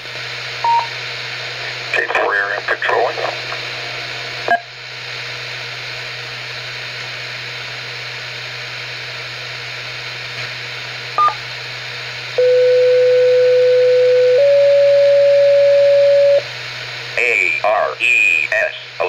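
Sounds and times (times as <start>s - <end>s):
loud steady tone: 0.6s - 4.8s, 11.2s - 11.5s, 12.3s - 19.0s
radio receiver hissing: 1.6s - 3.7s.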